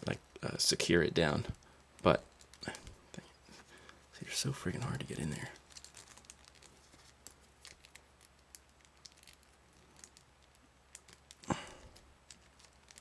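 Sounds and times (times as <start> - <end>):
fingers handling plastic figure: 4.7 - 13.0.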